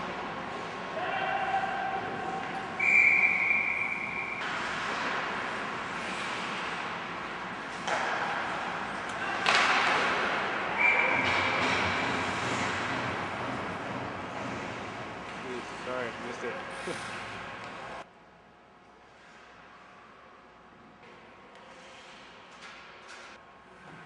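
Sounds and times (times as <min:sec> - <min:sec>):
referee's whistle blasts: 0:02.8 - 0:04.4, 0:10.7 - 0:11.4
skates scraping on ice: 0:04.4 - 0:17.9.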